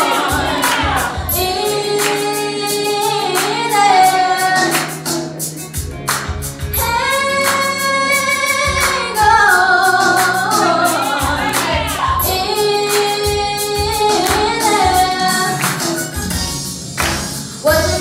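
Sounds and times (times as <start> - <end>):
girls singing together: 0.0 - 4.9, 6.8 - 16.0
steady beat: 0.0 - 18.0.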